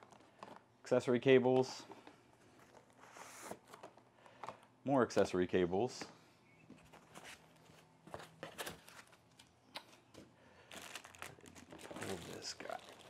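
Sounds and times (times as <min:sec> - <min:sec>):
cardboard and plastic rustling: 0:06.8 - 0:09.2, 0:10.1 - 0:13.0.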